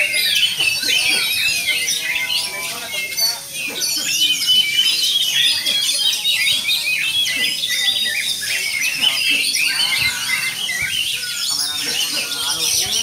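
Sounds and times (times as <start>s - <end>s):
songbirds chirping and trilling: 0.0s - 13.0s.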